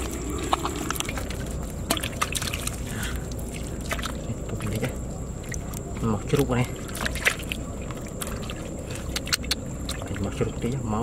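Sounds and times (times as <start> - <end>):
hands squelching wet mud: 0.0 - 10.8
water splashes and drips: 0.0 - 10.8.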